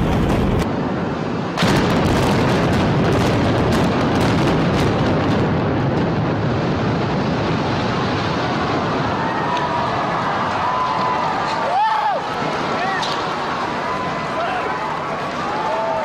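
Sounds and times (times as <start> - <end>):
explosive charges cracking: 0.0 - 0.8, 1.5 - 9.9
rumble of building collapsing: 0.0 - 16.0.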